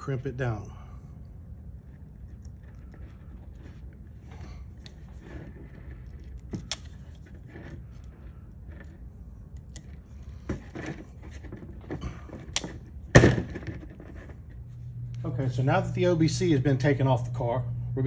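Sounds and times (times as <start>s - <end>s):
tool and wire rustling: 1.2s - 15.3s.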